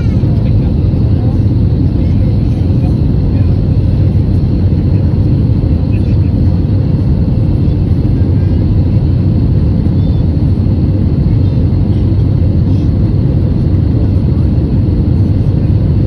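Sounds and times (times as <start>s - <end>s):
jet cabin low rumble: 0.0s - 16.0s.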